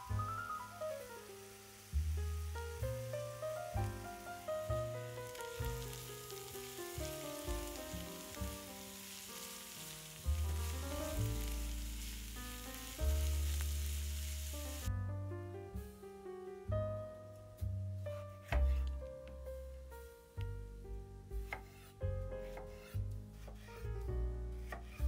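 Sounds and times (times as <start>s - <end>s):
vegetables sizzling in a frying pan: 0.0s - 14.9s
background piano music: 0.0s - 25.0s.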